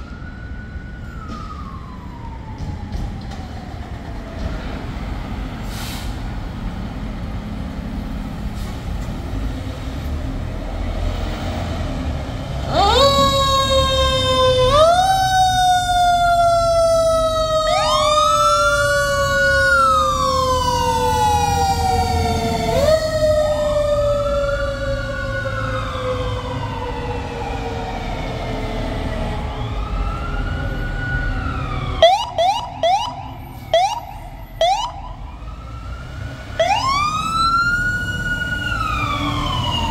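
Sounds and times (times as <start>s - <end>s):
wailing siren: 0.0s - 5.0s, 11.9s - 39.9s
diesel engines rumbling: 0.0s - 39.9s
siren winding up and down: 12.6s - 27.3s, 31.1s - 39.9s.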